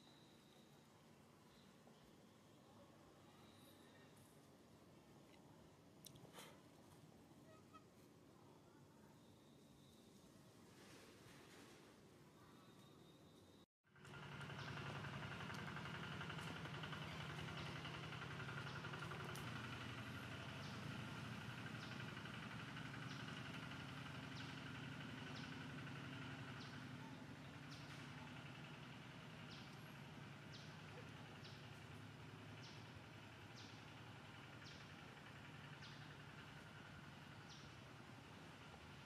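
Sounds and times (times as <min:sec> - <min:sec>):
bird chirping: 0:00.0 - 0:04.2.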